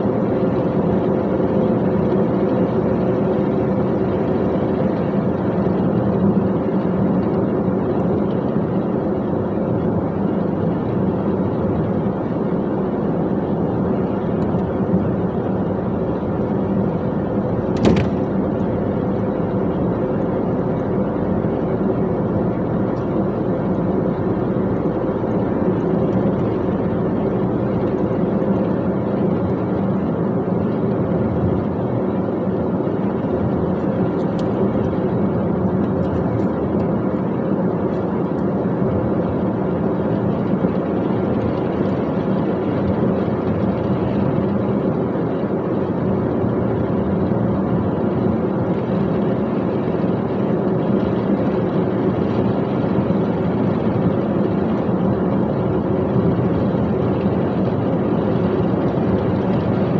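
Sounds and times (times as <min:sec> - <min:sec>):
road noise: 0:00.0 - 0:59.9
sharp click: 0:17.8 - 0:18.2.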